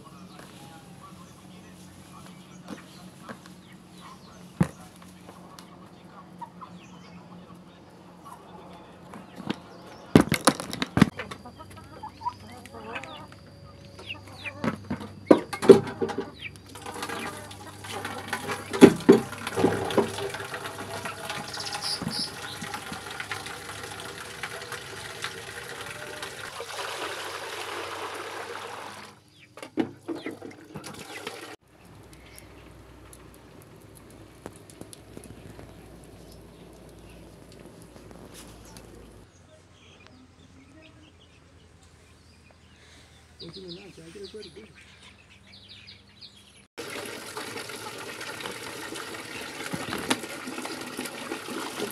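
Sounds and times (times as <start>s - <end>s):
chickens clucking: 0.3s - 10.3s, 11.0s - 28.0s, 29.4s - 32.8s
water running into plastic bucket: 16.7s - 29.2s, 30.2s - 31.6s, 46.8s - 51.9s.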